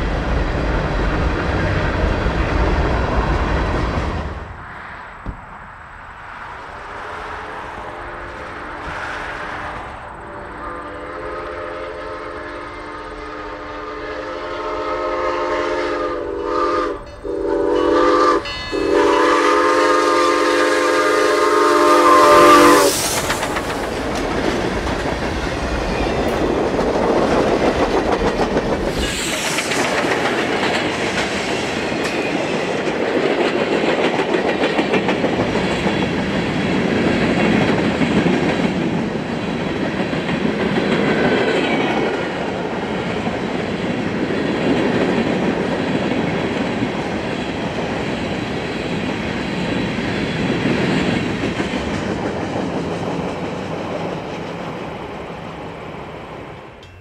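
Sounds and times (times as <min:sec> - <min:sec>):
steam locomotive whistle: 0:10.2 - 0:23.2
train wheels clacking over rail joints: 0:22.9 - 0:55.6.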